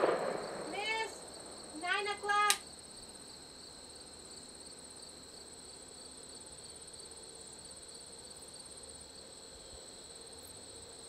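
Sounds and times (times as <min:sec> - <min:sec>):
sharp crack: 0:00.0 - 0:01.6
crickets chirping: 0:00.0 - 0:11.0.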